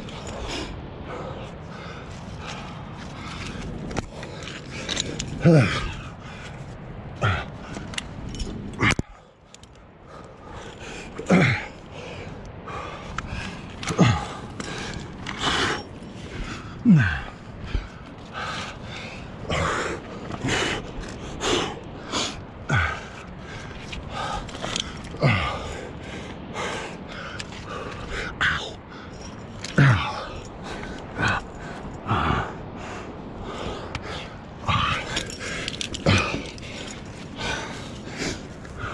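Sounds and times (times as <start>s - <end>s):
person grunting: 5.4s - 6.0s, 16.8s - 17.4s
person breathing hard: 8.9s - 38.9s.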